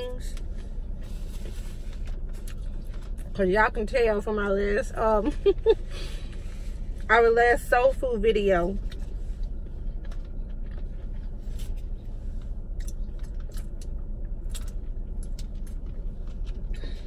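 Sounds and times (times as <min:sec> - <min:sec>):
car cabin hum: 0:00.0 - 0:17.0
person chewing: 0:12.7 - 0:16.9.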